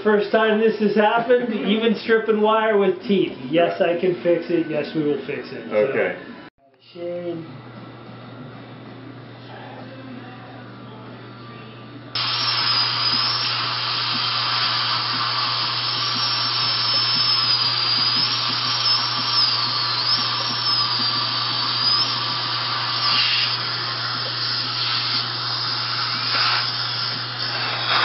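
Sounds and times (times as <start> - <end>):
dental drill whine: 12.2 - 28.0
suction hiss: 12.2 - 28.0.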